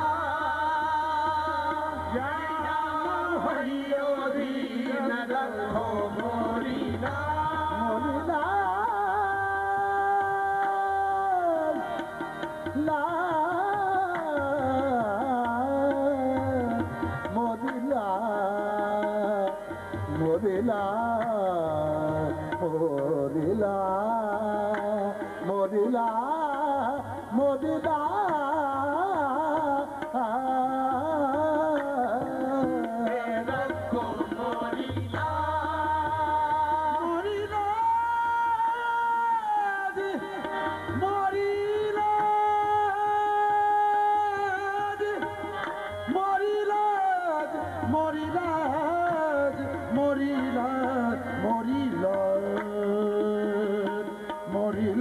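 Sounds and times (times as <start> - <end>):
voices singing ornamented melody: 0.0 - 18.2, 31.2 - 39.0
harmoniums: 0.0 - 55.0
tabla: 0.0 - 55.0.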